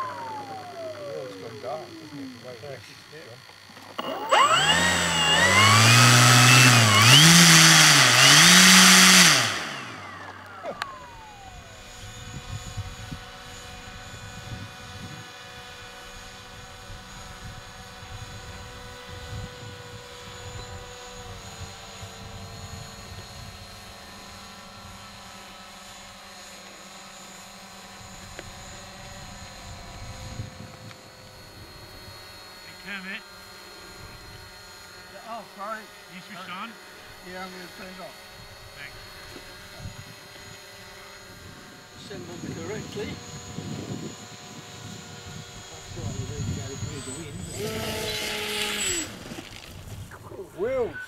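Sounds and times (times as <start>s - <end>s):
model aircraft motor and propeller: 0.0s - 51.0s.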